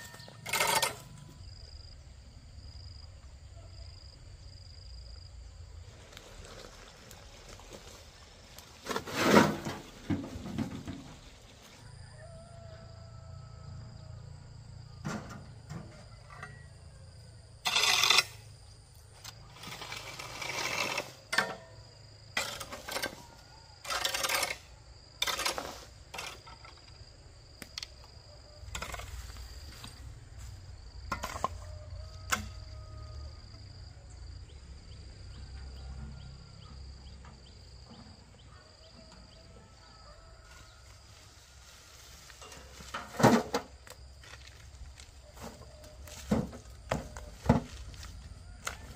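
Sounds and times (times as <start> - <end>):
hand tool scraping and chopping: 0.0 - 1.2, 8.6 - 11.1, 17.6 - 18.5, 19.2 - 27.0, 28.6 - 30.0, 31.0 - 32.6.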